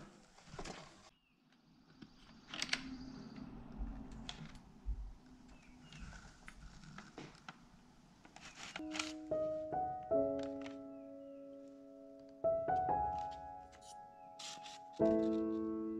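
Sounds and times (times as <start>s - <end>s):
paper rustling and scraping: 8.3s - 9.7s, 13.0s - 15.8s.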